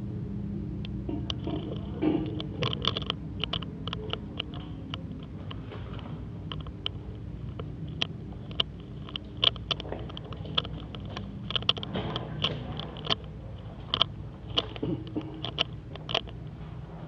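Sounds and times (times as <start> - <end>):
steady low hum: 0.0 - 17.0
sharp clicks and taps: 6.5 - 16.4.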